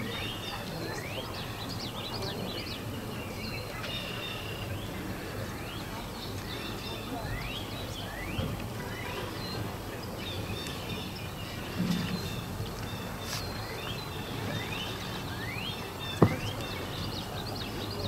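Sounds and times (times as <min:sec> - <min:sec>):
steady outdoor rush: 0:00.0 - 0:18.0.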